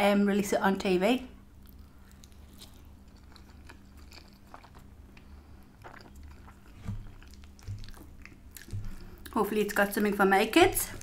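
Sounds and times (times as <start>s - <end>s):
chewing soft food: 1.5s - 11.0s.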